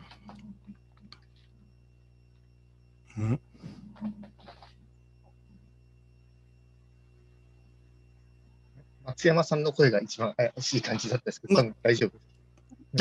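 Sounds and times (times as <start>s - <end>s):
low electrical hum: 0.0s - 13.0s
quiet voice sounds: 3.1s - 4.2s.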